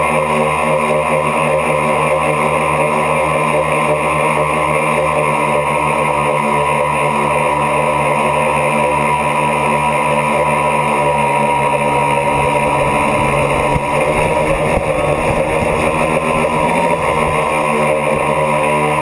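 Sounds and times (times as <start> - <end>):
drone motors and propellers whining: 0.0 - 19.0
wind rumble on microphone: 12.0 - 19.0.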